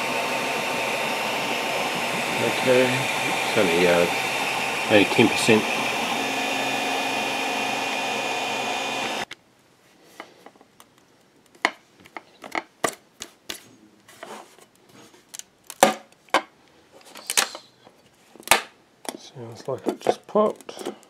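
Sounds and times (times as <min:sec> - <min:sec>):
printer fans and motors humming: 0:00.0 - 0:09.3.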